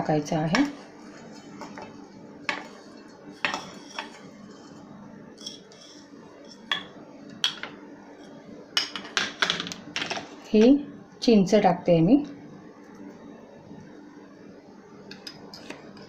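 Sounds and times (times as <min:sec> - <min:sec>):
faint steady hum: 0:00.0 - 0:16.0
ceramic bowls clinking: 0:03.3 - 0:04.6, 0:05.4 - 0:10.2.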